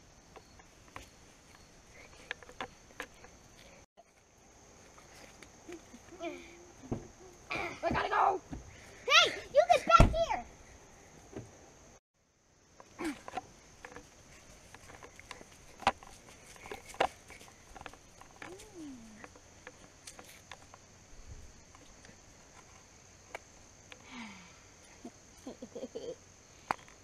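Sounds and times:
high insect drone: 0.0s - 27.0s
footsteps on dirt path: 13.0s - 20.7s.

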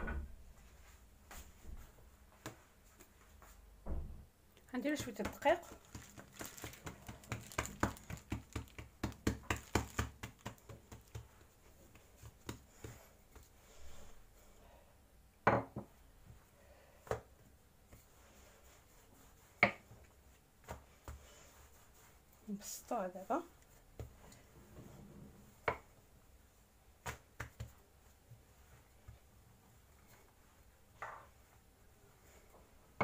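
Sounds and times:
hands slapping dough: 2.3s - 3.5s, 4.8s - 13.7s, 17.0s - 22.2s, 23.6s - 24.4s, 26.9s - 29.3s.

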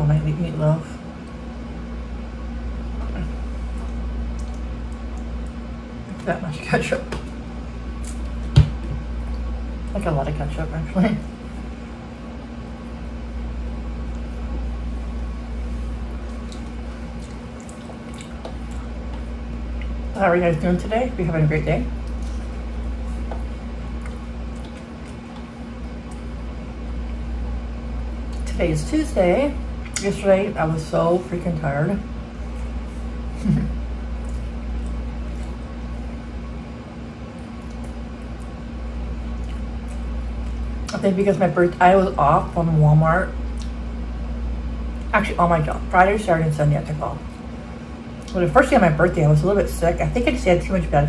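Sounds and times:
low mechanical hum: 0.0s - 51.0s
close-up chewing: 12.7s - 20.1s, 21.9s - 28.5s, 32.3s - 36.6s, 37.2s - 40.9s.

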